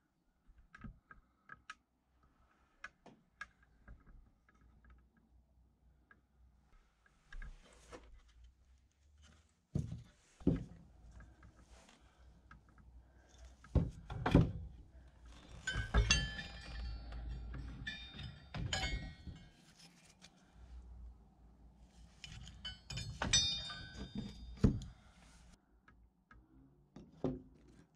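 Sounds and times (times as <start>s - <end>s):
iron horseshoes clinking: 15.4s - 19.6s, 22.2s - 25.0s.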